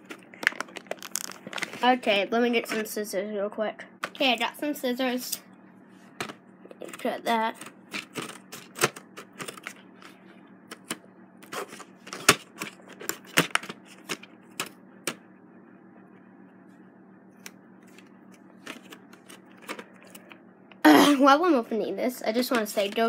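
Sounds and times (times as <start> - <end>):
plastic packaging crackling: 0.1 - 1.9.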